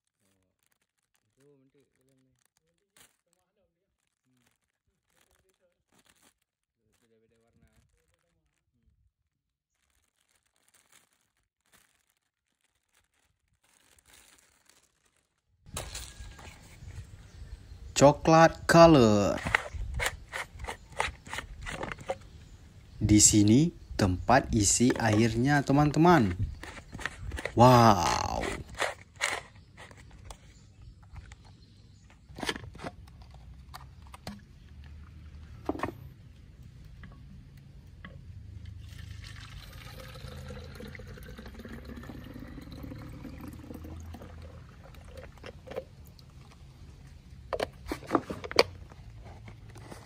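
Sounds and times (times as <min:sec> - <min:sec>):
plastic bag crinkling: 0:00.0 - 0:09.1, 0:09.7 - 0:16.9, 0:24.5 - 0:30.4.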